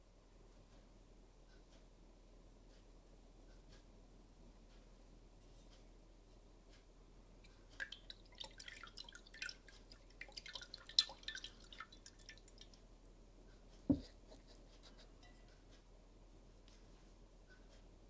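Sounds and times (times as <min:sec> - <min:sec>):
beaker thumping on bench: 0:13.9 - 0:14.1.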